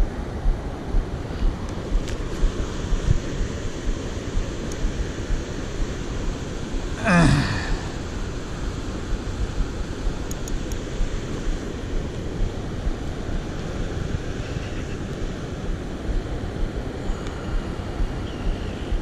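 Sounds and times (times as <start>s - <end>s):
wind buffeting the microphone: 0.0s - 7.0s, 7.7s - 19.0s
short vocal sound: 7.0s - 8.0s.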